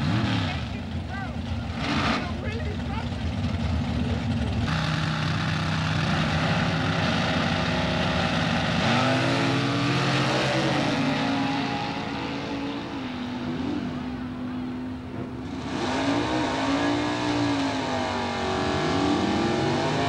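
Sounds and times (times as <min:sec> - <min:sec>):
drag race engines revving: 0:00.0 - 0:20.0.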